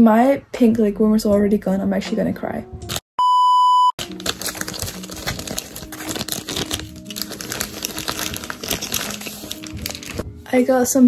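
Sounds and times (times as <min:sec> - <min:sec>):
plastic packaging crinkling: 0:04.0 - 0:10.2.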